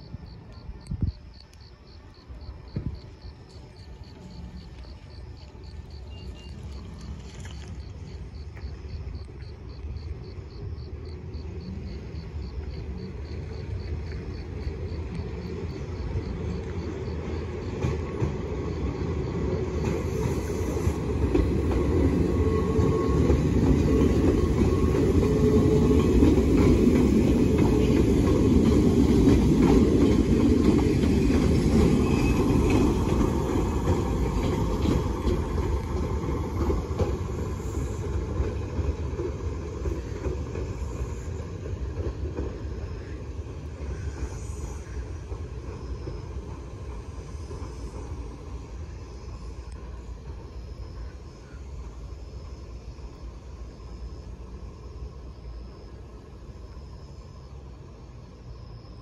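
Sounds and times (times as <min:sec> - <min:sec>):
electric train passing: 0:00.0 - 0:59.0.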